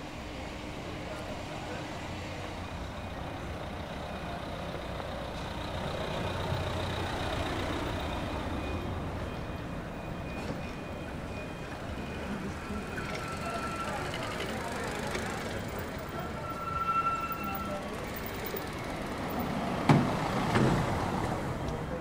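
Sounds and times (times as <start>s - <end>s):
street traffic: 0.0s - 22.0s.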